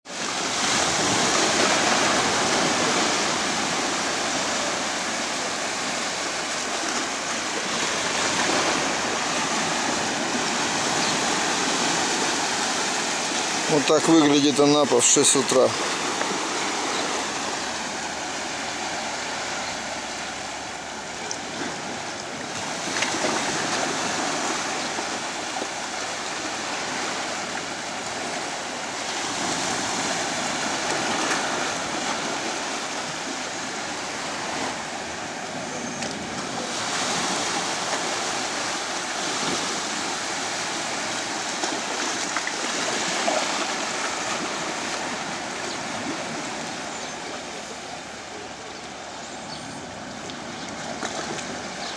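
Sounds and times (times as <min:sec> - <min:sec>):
waves breaking on sandy beach: 0:00.0 - 0:51.9.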